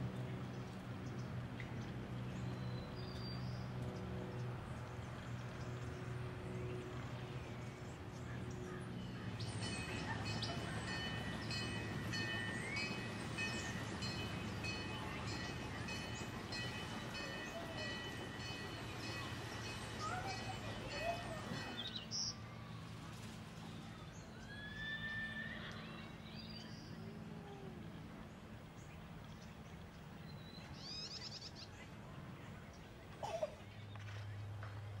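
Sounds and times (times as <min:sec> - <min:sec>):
low outdoor hum: 0:00.0 - 0:35.0
small birds chirping: 0:00.5 - 0:22.4.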